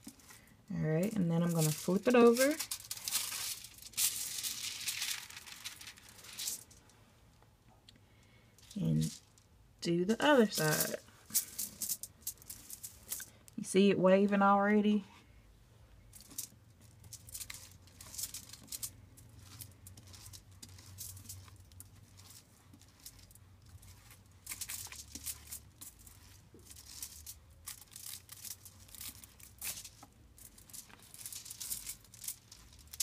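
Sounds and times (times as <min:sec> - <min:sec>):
foil crinkling: 0:00.0 - 0:06.8, 0:16.2 - 0:33.0
brush stroking wet hair: 0:01.0 - 0:05.2, 0:17.5 - 0:30.0.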